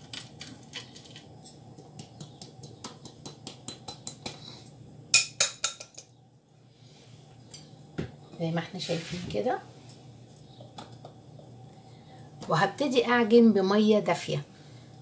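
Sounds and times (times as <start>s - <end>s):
kitchenware tapping plastic bowl: 1.9s - 4.4s.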